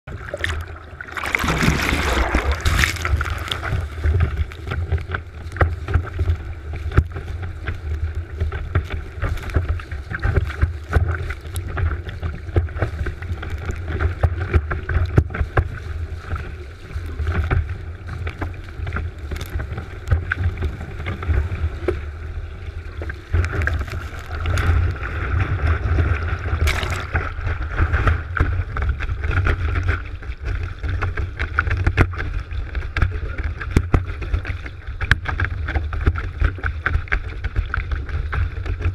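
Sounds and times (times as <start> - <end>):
water rushing and spraying: 0.1 - 6.2, 18.0 - 27.9.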